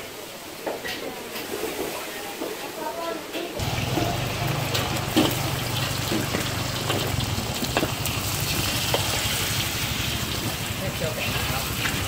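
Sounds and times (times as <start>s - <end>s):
eggs sizzling in hot oil: 3.6s - 12.0s
gas burner rushing: 3.6s - 12.0s.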